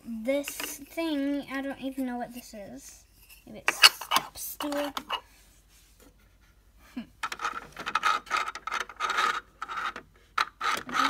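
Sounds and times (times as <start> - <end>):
plastic toy pieces scraping: 7.2 - 11.0.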